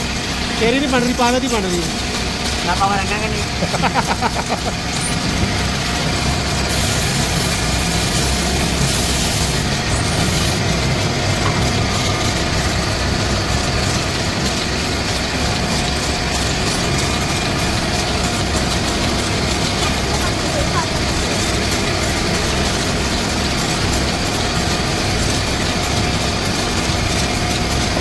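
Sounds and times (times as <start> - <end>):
wood lathe humming: 0.0 - 28.0
bright hiss: 6.6 - 10.6.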